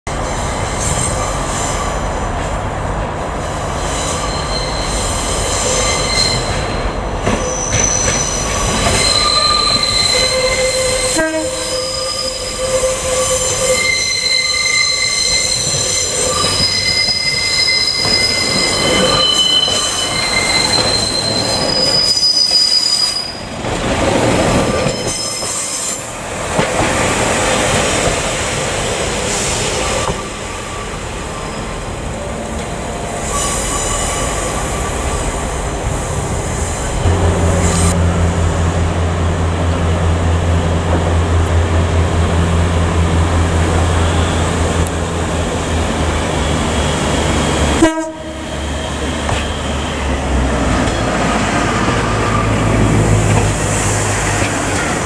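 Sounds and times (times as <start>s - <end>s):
wheels squealing on track: 3.8s - 23.7s, 24.3s - 26.0s.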